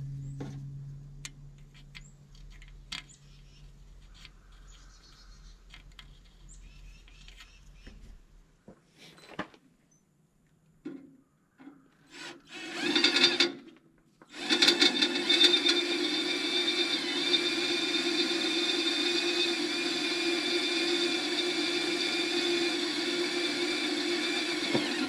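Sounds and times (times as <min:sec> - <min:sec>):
cordless drill whining: 0:12.1 - 0:13.6, 0:14.2 - 0:25.0.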